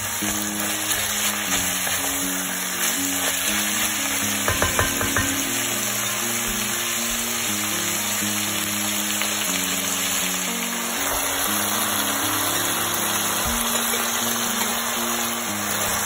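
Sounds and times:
guitar music: 0.0 - 16.0
meat and onion sizzling: 0.0 - 16.0
wooden spoon knocking on pot: 4.4 - 5.6.

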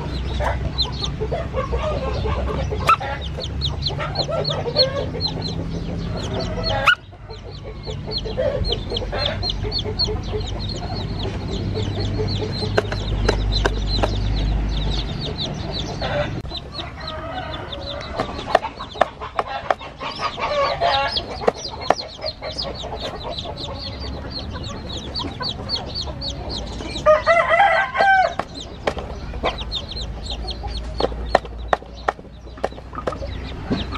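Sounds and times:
adult chicken calling: 0.0 - 33.9
chicks peeping: 0.0 - 33.9.

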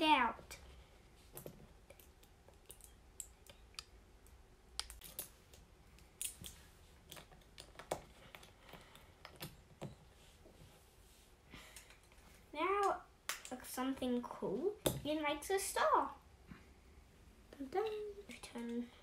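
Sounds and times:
plastic pieces snapping together: 1.4 - 8.5.

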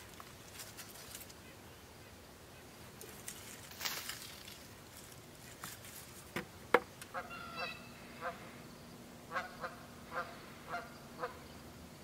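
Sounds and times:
geese honking overhead: 7.1 - 8.6, 9.3 - 11.6.

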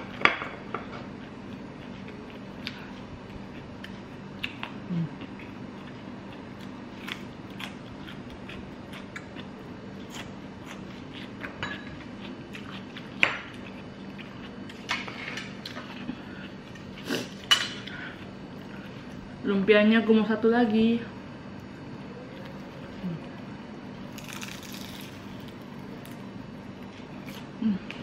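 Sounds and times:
crunchy chewing: 0.9 - 19.3, 21.6 - 28.0
dishes and cutlery clinking: 11.5 - 12.0.

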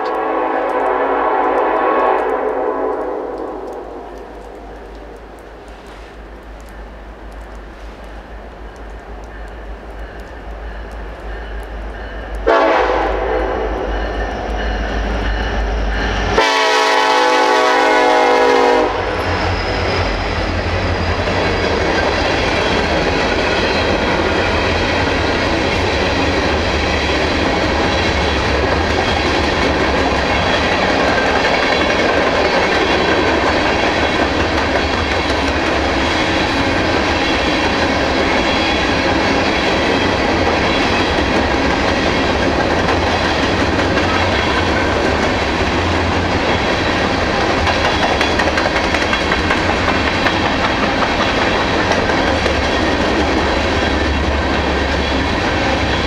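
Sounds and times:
locomotive horn blast: 0.0 - 4.0, 12.4 - 13.9, 16.4 - 19.3
freight cars rumbling and clacking: 38.9 - 56.0.

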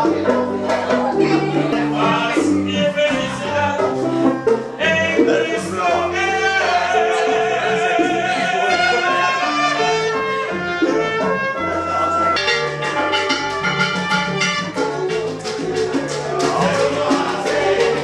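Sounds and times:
latin dance music with singing: 0.0 - 18.0.

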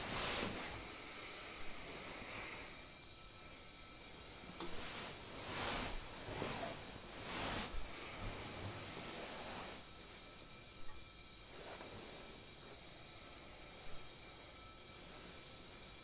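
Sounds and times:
cloth swishing: 0.0 - 0.9, 4.2 - 10.2
steady hiss: 0.0 - 16.0.

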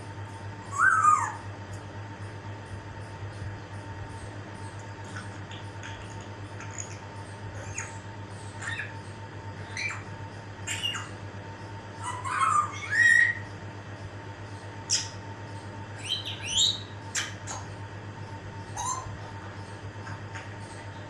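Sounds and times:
parrot rising whistles: 0.7 - 1.5
parrot squawks: 0.7 - 1.5, 12.0 - 13.5, 18.7 - 19.2.

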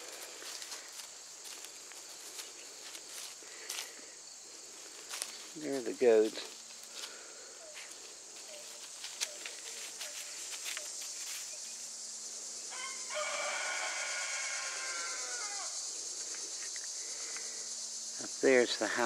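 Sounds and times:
high insect drone: 0.0 - 19.0
rooster crowing: 12.6 - 16.0.

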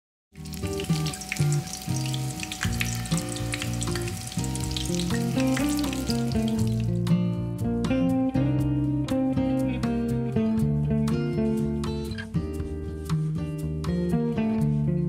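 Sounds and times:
oil sizzling while deep-frying: 0.4 - 7.0
guitar music: 0.4 - 15.0.

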